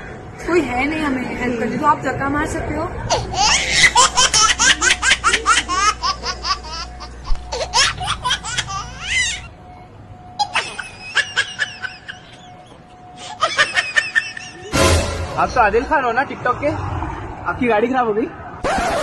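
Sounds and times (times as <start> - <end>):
high-pitched laughter: 10.4 - 14.8.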